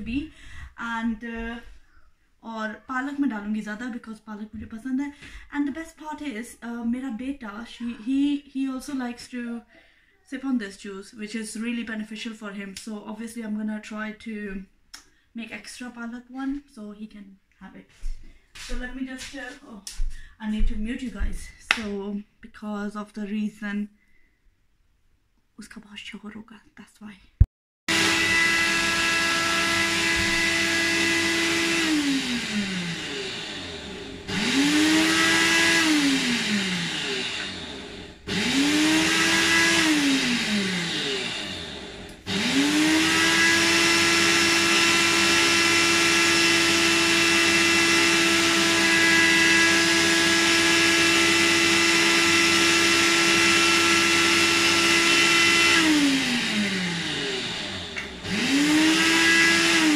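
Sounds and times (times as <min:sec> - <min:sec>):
electric blender running: 0:27.9 - 0:59.9.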